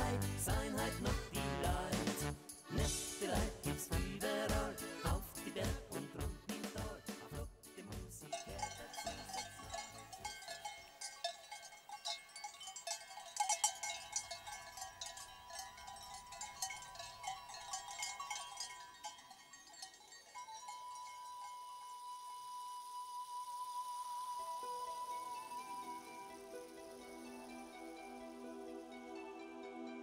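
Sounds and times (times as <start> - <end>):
held musical tone: 0.0 - 7.2, 8.2 - 30.0
cowbells clanking: 8.2 - 21.9.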